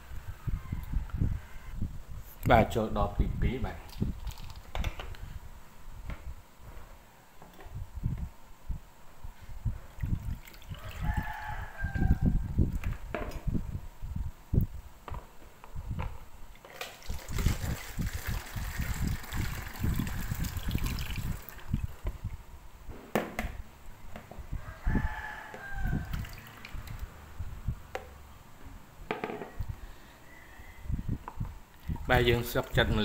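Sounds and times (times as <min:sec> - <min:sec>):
liquid sloshing in basins: 0:09.9 - 0:11.0, 0:16.5 - 0:22.0, 0:26.0 - 0:27.1
rooster crowing: 0:10.7 - 0:12.5, 0:24.5 - 0:26.8, 0:30.2 - 0:31.2.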